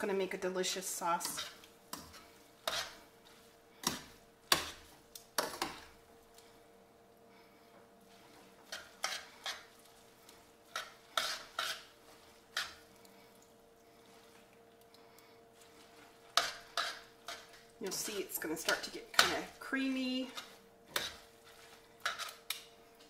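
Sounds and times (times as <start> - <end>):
faint steady hum: 0.0 - 23.0.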